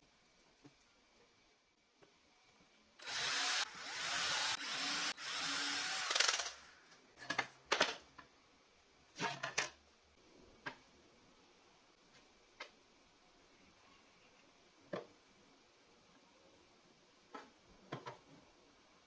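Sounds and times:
cordless drill boring through wood: 3.0s - 6.7s.

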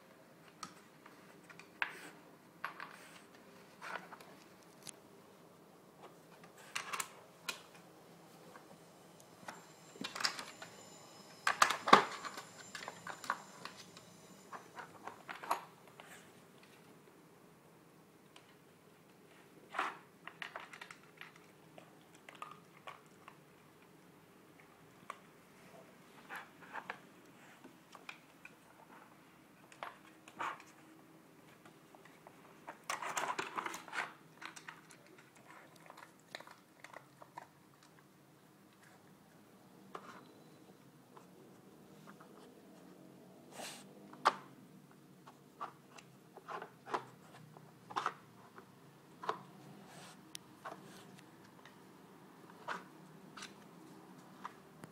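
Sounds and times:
plastic puzzle blocks clicking: 19.8s - 21.6s, 32.8s - 37.3s
plastic puzzle pieces clicking: 20.2s - 21.5s.

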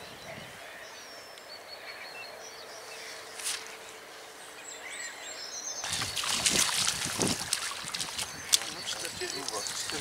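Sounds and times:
birds singing and whistling: 0.0s - 10.0s
brief rustle: 3.4s - 3.8s.

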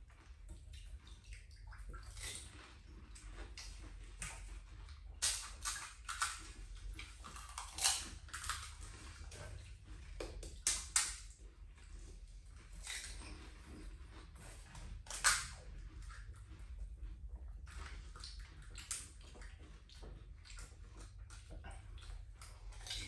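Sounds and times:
crisp shells cracking and crunching: 5.2s - 9.0s, 15.1s - 15.6s.

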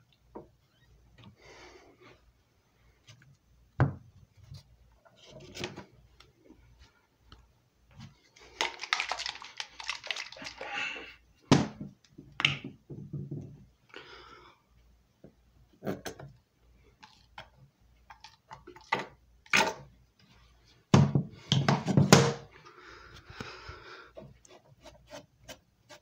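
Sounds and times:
rapid clicking and rustling: 8.5s - 10.6s
plastic parts knocking and clicking: 8.6s - 10.6s.

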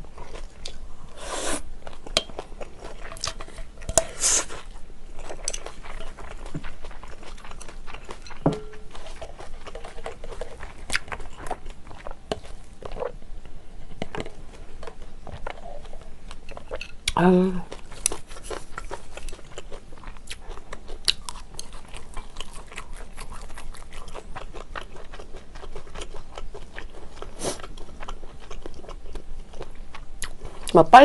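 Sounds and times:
wet chewing: 0.0s - 30.8s
tableware clinking: 8.2s - 8.9s.

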